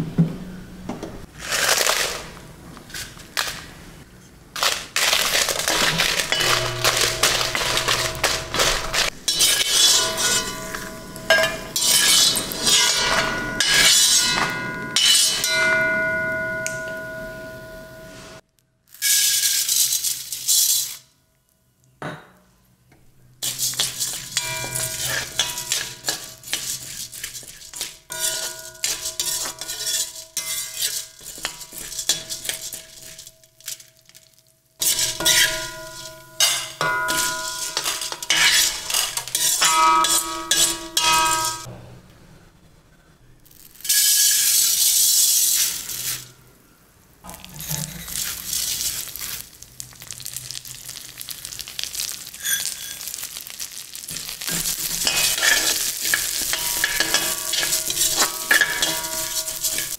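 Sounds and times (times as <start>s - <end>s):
lentils pouring into pan: 4.6s - 9.2s, 43.5s - 46.3s, 48.1s - 59.9s
ladle scraping and clinking pan: 5.4s - 15.8s, 23.4s - 33.3s, 34.8s - 41.7s, 52.4s - 53.2s, 54.1s - 59.9s.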